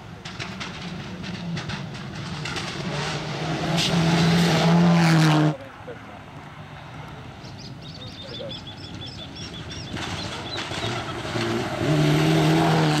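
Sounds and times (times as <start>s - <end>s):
rally car engine approaching: 0.0s - 13.0s
bird chirping rapidly: 7.4s - 11.2s.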